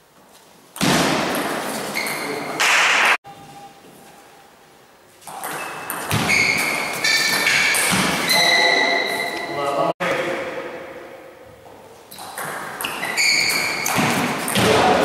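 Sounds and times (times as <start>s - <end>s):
high squeaks: 1.7s - 2.6s, 5.2s - 9.9s, 12.1s - 14.6s
table tennis ball hits: 12.2s - 15.0s.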